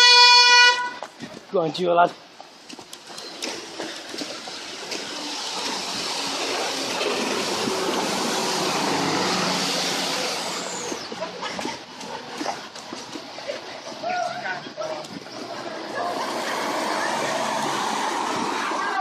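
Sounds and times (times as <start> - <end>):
tyres hissing on wet road: 3.0 - 12.0, 14.0 - 19.0
vehicle engine passing: 3.4 - 14.0, 14.8 - 19.0.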